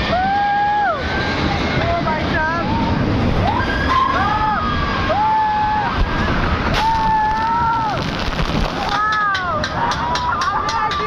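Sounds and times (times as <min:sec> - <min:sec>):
ride rumbling: 0:00.0 - 0:11.0
riders screaming: 0:03.4 - 0:08.0.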